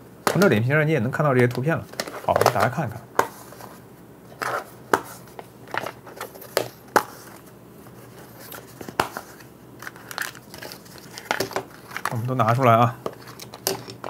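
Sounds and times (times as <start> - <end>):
plastic cases clicking and knocking: 0.2 - 0.5, 9.8 - 12.2, 13.0 - 14.0.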